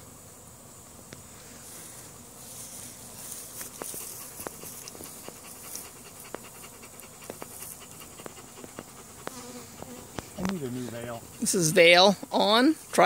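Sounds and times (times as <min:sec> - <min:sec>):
dog panting: 0:03.6 - 0:12.2.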